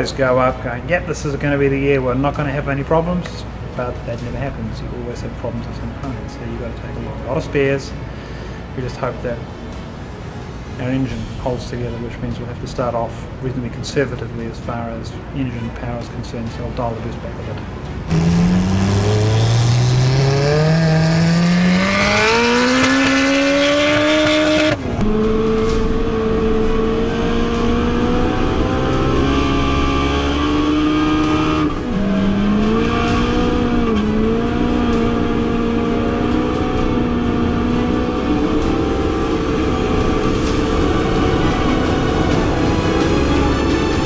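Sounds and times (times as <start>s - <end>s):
car engine at full throttle: 18.1s - 44.0s.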